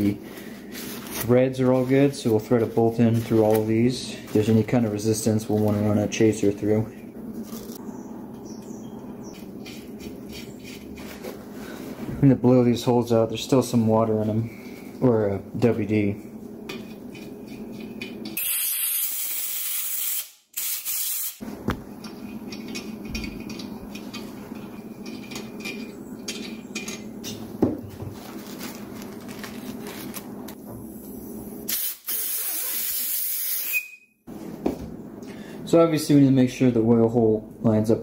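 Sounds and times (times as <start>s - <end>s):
compressed air blasts hissing: 18.4s - 21.4s, 31.7s - 33.8s.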